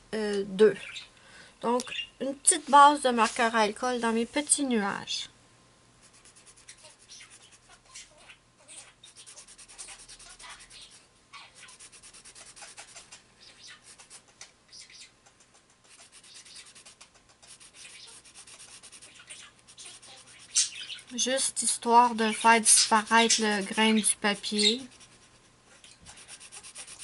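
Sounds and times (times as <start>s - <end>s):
marker tip rubbing on paper: 6.0s - 7.8s, 9.0s - 13.2s, 13.8s - 14.3s, 15.8s - 21.3s, 22.0s - 25.4s, 26.1s - 27.0s.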